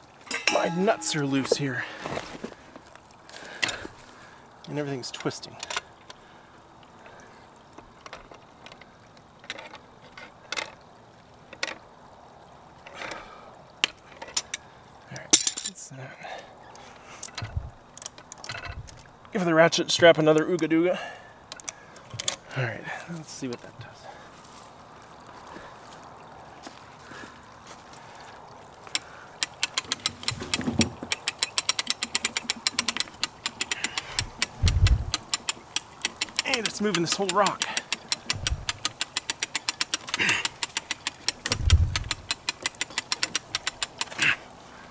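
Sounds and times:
metal clicks and clinks: 0:00.2 - 0:01.6, 0:15.2 - 0:15.8, 0:28.9 - 0:44.4
low thuds: 0:34.6 - 0:35.2, 0:41.5 - 0:42.3.

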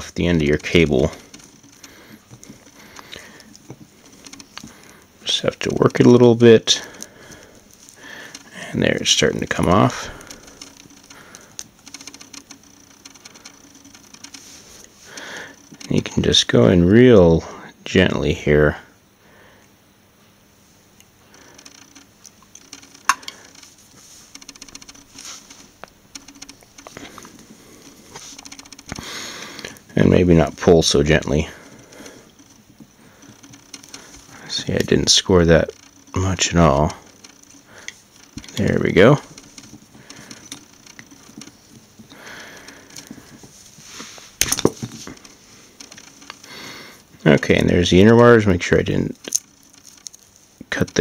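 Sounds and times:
cable sheathing crackling: 0:00.0 - 0:17.0, 0:21.0 - 0:51.0.

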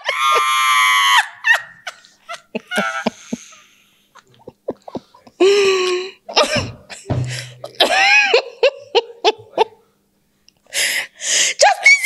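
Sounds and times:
woman laughing: 0:01.1 - 0:03.7, 0:04.3 - 0:09.8.

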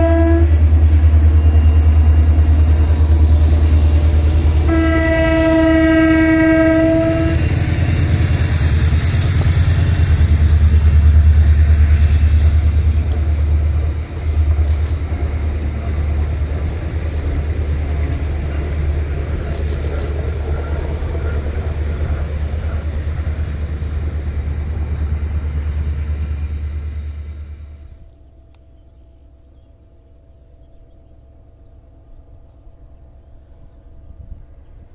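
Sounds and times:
locomotive horn blast: 0:00.0 - 0:00.9, 0:04.5 - 0:09.0
train rumbling past: 0:00.0 - 0:34.9.

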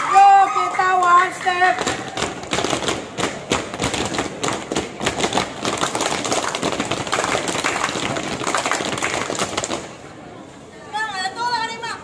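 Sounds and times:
crowd noise: 0:00.0 - 0:12.0
sharp claps: 0:00.7 - 0:09.9.

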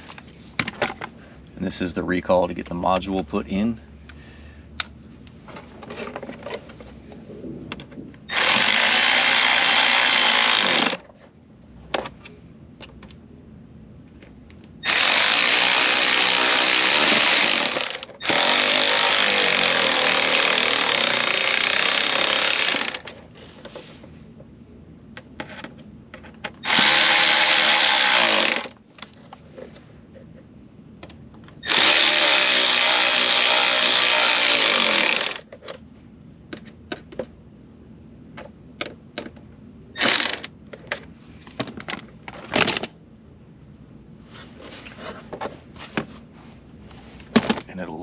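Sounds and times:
small power drill spinning: 0:08.3 - 0:11.0, 0:14.8 - 0:23.0, 0:26.6 - 0:28.8, 0:31.6 - 0:35.4, 0:40.0 - 0:40.5.

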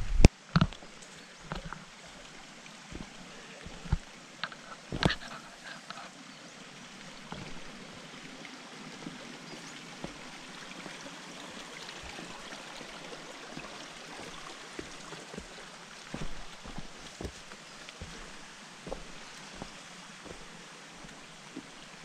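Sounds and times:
footsteps on dirt trail: 0:00.0 - 0:04.1, 0:04.9 - 0:05.4, 0:07.1 - 0:07.8, 0:09.0 - 0:10.6, 0:14.2 - 0:22.0
forest creek running: 0:00.0 - 0:22.0.

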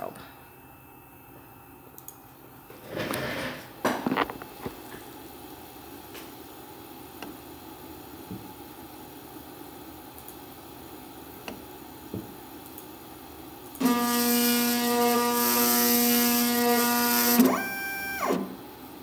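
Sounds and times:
stepper motor whine: 0:13.8 - 0:18.6.

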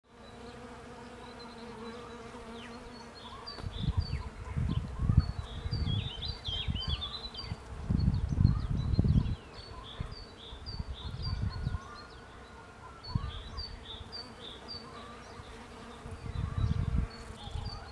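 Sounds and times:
honeybees buzzing: 0:00.1 - 0:17.9
small birds chirping: 0:00.1 - 0:17.9
wind rumbling on microphone: 0:03.6 - 0:12.0, 0:13.0 - 0:13.8, 0:16.0 - 0:17.9.

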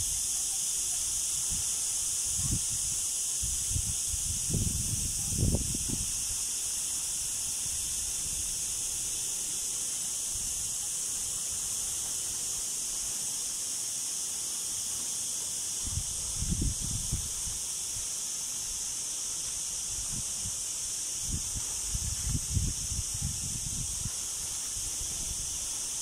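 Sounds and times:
steady high-pitched hiss: 0:00.0 - 0:26.0
wind buffeting microphone: 0:02.3 - 0:06.2, 0:21.3 - 0:24.1.

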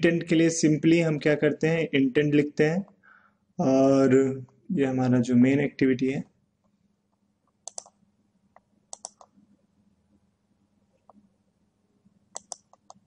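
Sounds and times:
faint steady hum: 0:00.0 - 0:13.0
computer mouse clicks: 0:07.1 - 0:09.4, 0:12.3 - 0:13.0.

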